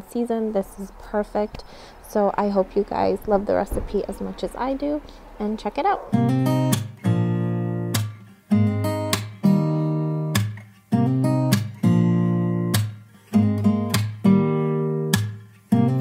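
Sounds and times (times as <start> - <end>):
acoustic guitar strumming chords: 5.8 - 16.0.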